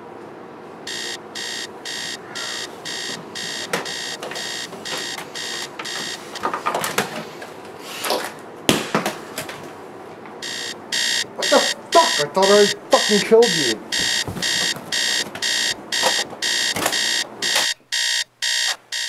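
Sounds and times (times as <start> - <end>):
alarm clock beeping: 0.9 - 6.5, 10.4 - 19.0.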